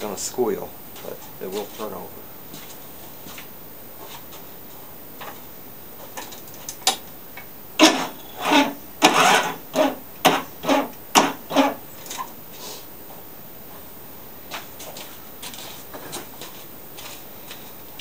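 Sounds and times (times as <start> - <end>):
mower engine cranking with squeal: 7.8 - 10.0, 10.6 - 11.8.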